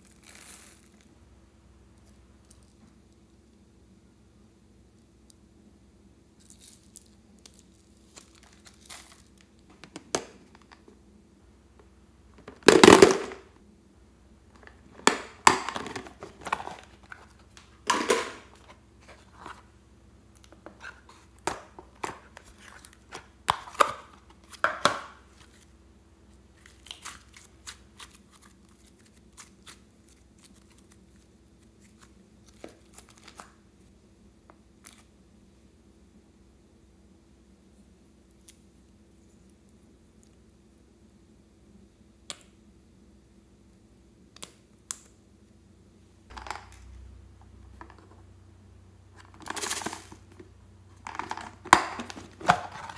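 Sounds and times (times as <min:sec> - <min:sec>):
plastic containers crinkling and clicking: 0:08.1 - 0:11.0, 0:14.5 - 0:19.7, 0:20.4 - 0:25.6, 0:46.3 - 0:46.9, 0:47.7 - 0:48.2, 0:49.2 - 0:52.9.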